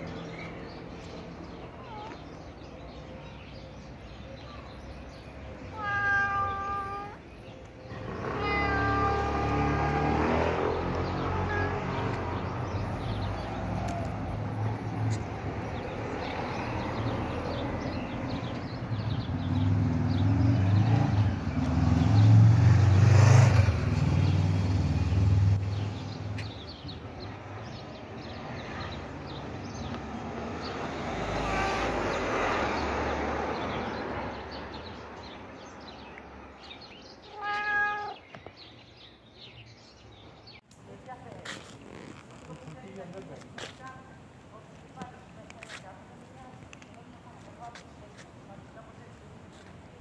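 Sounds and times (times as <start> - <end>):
cat meowing: 5.7 - 7.2, 8.2 - 10.0, 11.3 - 12.2, 37.3 - 38.2.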